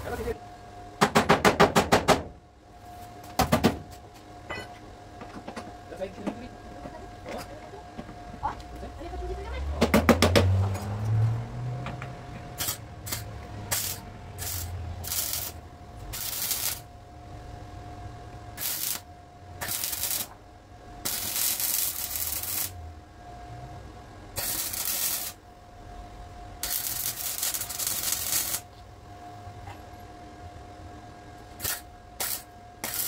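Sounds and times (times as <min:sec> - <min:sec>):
faint steady hum: 0:00.0 - 0:09.7, 0:11.9 - 0:33.0
welding arc crackling: 0:12.6 - 0:16.9, 0:18.6 - 0:20.4, 0:21.0 - 0:22.8, 0:24.4 - 0:25.4, 0:26.6 - 0:28.7, 0:31.6 - 0:33.0.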